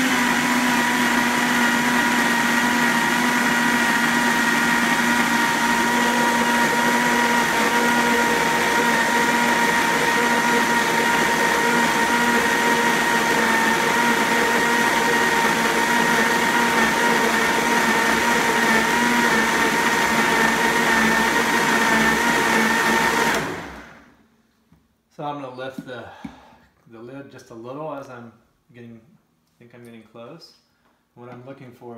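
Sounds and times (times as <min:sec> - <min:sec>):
blender motor whining: 0:00.0 - 0:24.1.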